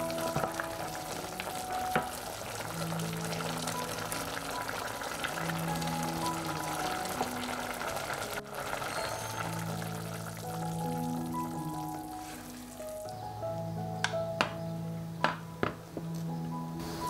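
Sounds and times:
vegetables sizzling in oil: 0.0 - 13.2
background music with held notes: 0.0 - 17.0.

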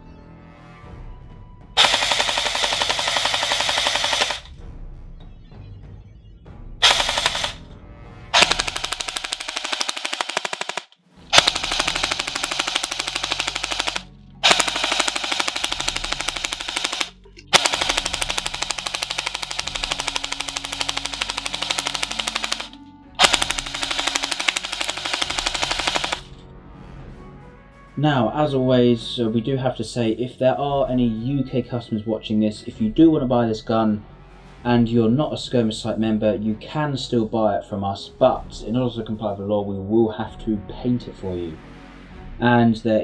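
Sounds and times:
airsoft rifle firing bursts: 1.8 - 4.5, 6.8 - 7.6, 8.4 - 26.3.

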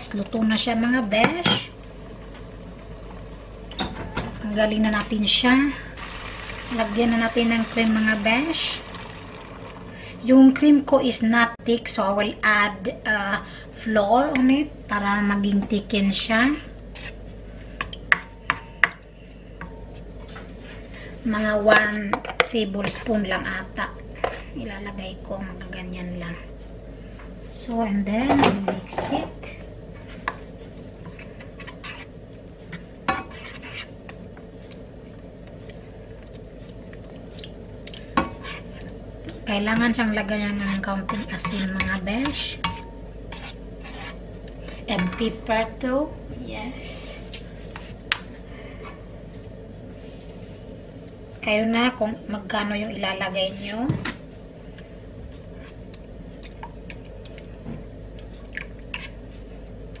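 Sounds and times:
steady low hum: 0.0 - 60.0
spatula scraping a frying pan: 31.2 - 32.2, 33.1 - 34.0, 38.3 - 38.8, 42.6 - 44.3.

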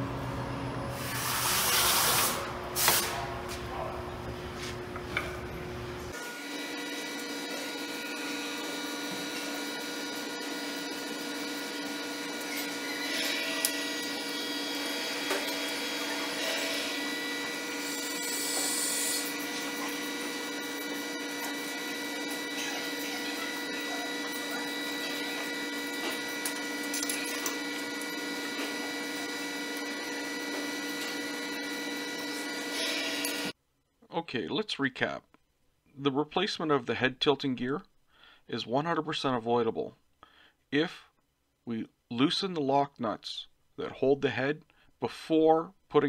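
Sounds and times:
machine hum: 2.4 - 33.6
milling machine head scraping: 6.6 - 33.5.

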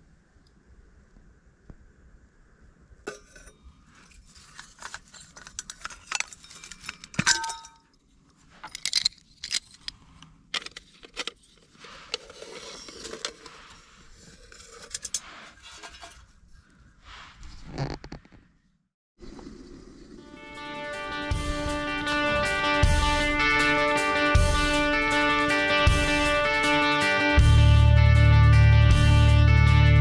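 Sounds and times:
small metal objects clinking: 4.7 - 7.9.

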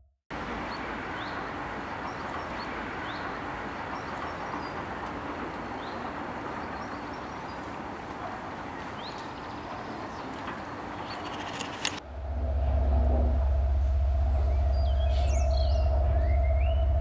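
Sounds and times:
high bird chirps: 14.3 - 17.0.

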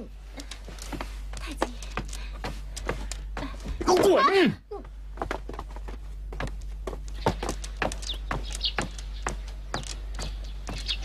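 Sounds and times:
footsteps walking: 0.2 - 11.0
small birds chirping: 5.4 - 11.0.

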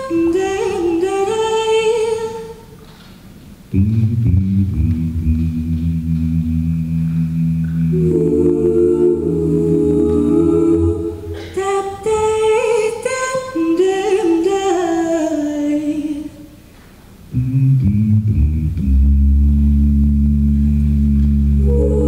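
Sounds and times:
a cappella group singing: 0.0 - 2.7, 3.7 - 16.4, 20.0 - 22.0.

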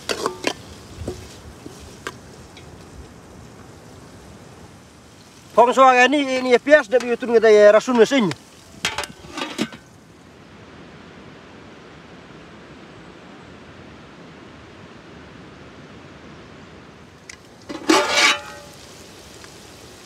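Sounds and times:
metal pot lid clatter: 0.0 - 1.2, 8.8 - 9.8, 17.7 - 18.8
steady outdoor hiss: 0.0 - 20.0.

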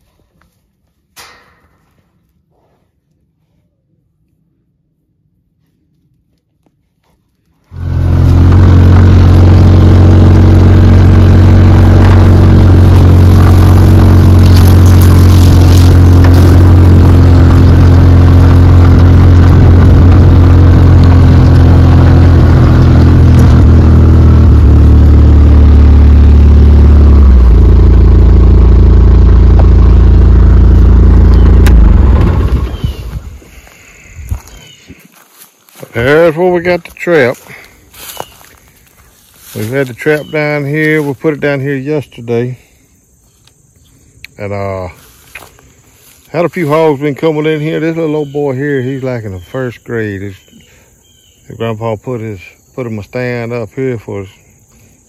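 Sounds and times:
utility vehicle engine running: 7.7 - 34.6.

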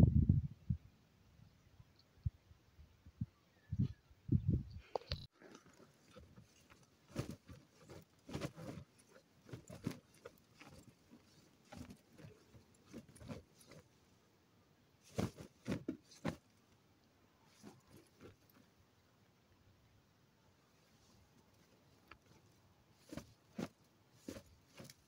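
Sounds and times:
umbrella rustling and knocking: 5.6 - 14.0, 15.0 - 16.6, 17.5 - 18.7, 22.2 - 25.0.

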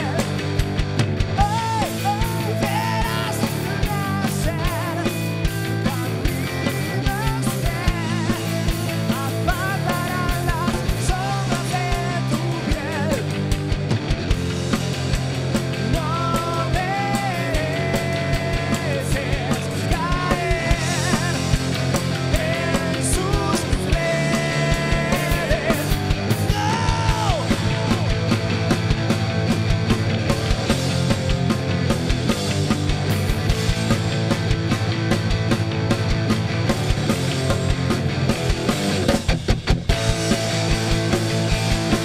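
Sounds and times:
man singing: 0.0 - 0.4, 1.4 - 13.4, 15.8 - 28.3
bass guitar: 0.0 - 42.0
drum kit beat: 0.0 - 42.0
electric guitar: 0.0 - 42.0.

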